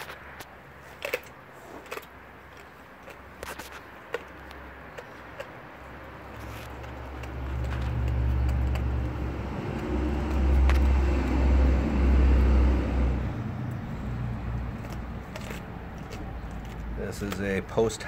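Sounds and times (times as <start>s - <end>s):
motor vehicle passing by: 3.7s - 17.5s.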